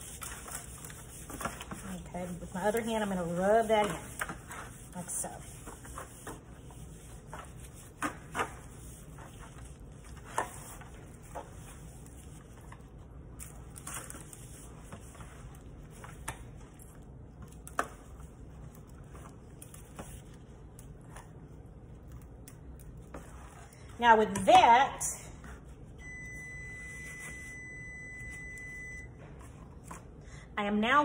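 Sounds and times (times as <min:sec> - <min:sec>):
gloved hand rubbing chicken in foil pan: 0:00.0 - 0:08.0.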